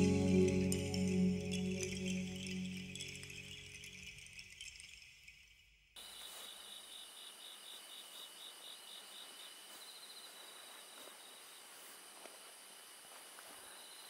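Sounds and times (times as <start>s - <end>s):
crickets chirping: 1.0s - 14.0s
steady hiss: 6.0s - 14.0s.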